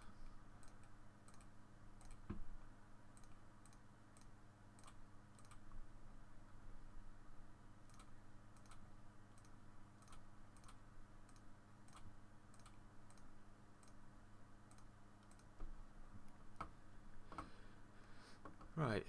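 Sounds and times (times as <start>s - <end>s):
low steady hum: 0.0s - 19.0s
computer mouse clicks: 0.6s - 2.5s, 3.1s - 5.8s, 7.8s - 14.0s, 14.6s - 16.7s.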